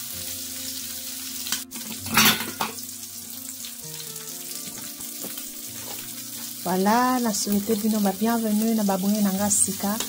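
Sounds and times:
chicken sizzling in oil: 0:00.0 - 0:10.0.

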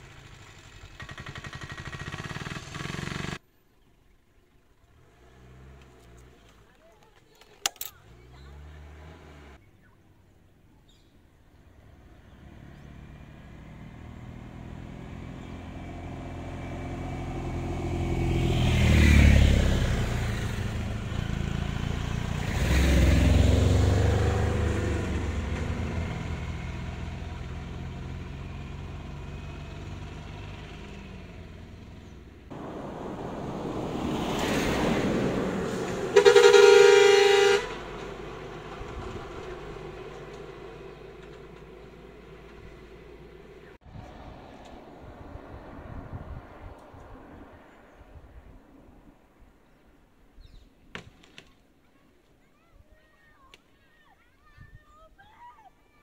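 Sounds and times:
vehicles passing: 0:04.4 - 0:52.4
vehicle horn blast: 0:36.0 - 0:38.0.

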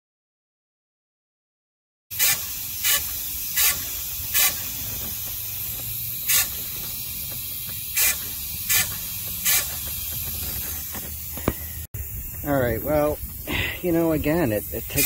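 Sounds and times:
short hissing spurts: 0:02.1 - 0:15.0
coolant bubbling: 0:02.2 - 0:11.8
steady hiss and low hum: 0:02.6 - 0:15.0.

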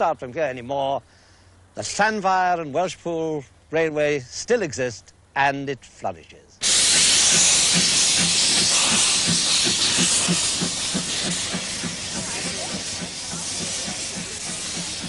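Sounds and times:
loud steam hiss: 0:06.6 - 0:15.0
steam locomotive exhaust chuffs: 0:06.6 - 0:15.0.

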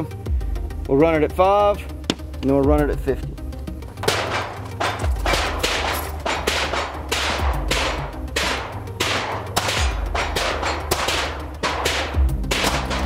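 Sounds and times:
music with deep slow beat: 0:00.0 - 0:13.0
handgun shots: 0:04.0 - 0:13.0.

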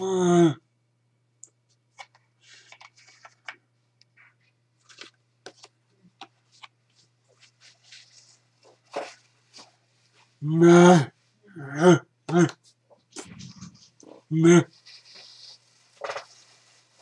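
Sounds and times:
low electrical hum: 0:00.0 - 0:17.0
cardboard flashcards rustling: 0:01.9 - 0:03.6, 0:04.2 - 0:10.3, 0:12.9 - 0:17.0.

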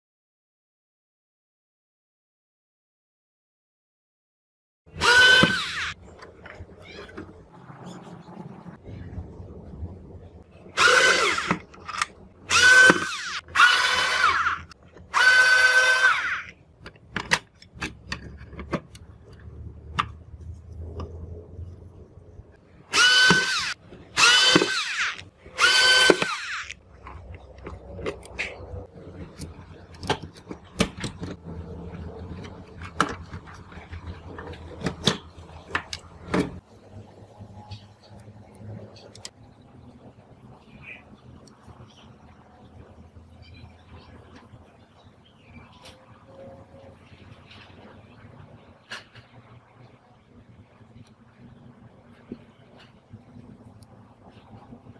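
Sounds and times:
electric screwdriver whining: 0:05.0 - 0:06.0, 0:10.8 - 0:11.6, 0:12.5 - 0:16.5, 0:22.9 - 0:26.7
low hum: 0:05.0 - 0:17.0, 0:17.6 - 0:48.8
plastic parts clicking and knocking: 0:16.8 - 0:20.2, 0:23.2 - 0:31.4, 0:32.2 - 0:36.6.

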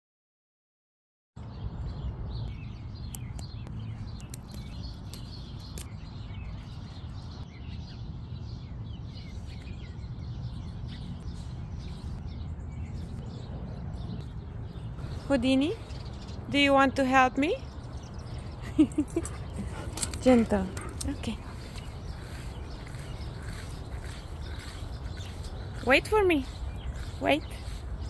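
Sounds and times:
songbirds chirping: 0:01.4 - 0:28.0.

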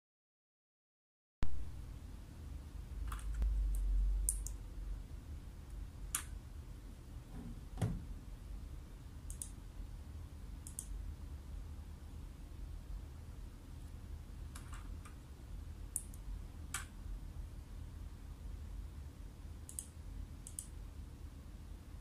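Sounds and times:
low room hum: 0:01.4 - 0:22.0
sharp clicks: 0:03.1 - 0:04.6, 0:09.3 - 0:09.6, 0:10.6 - 0:10.9, 0:19.7 - 0:20.8.

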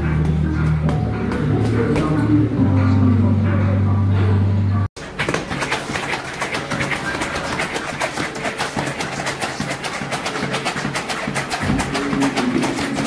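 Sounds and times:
faint music: 0:00.0 - 0:13.0
battle ropes slapping floor mats: 0:05.0 - 0:13.0.

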